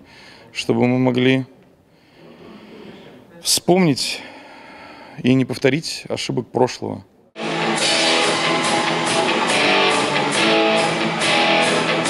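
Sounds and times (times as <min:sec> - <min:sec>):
bass guitar: 0:07.4 - 0:12.0
drums: 0:07.4 - 0:12.0
sustained guitar chords: 0:07.4 - 0:12.0.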